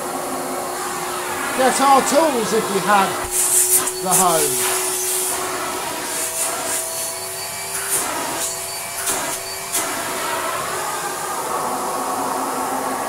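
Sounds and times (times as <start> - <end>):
vacuum cleaner running on carpet: 0.0 - 13.0
hissy surges: 0.1 - 13.0.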